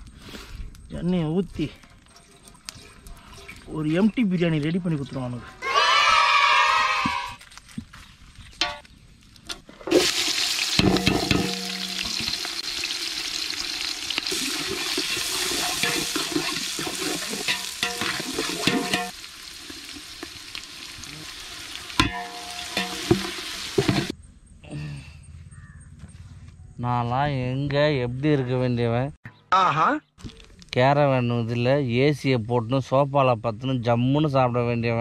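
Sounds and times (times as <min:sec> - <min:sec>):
ladle knocking and scraping pot: 0:09.9 - 0:12.4, 0:14.5 - 0:19.2, 0:22.0 - 0:24.1
food sizzling in hot oil: 0:09.9 - 0:24.1.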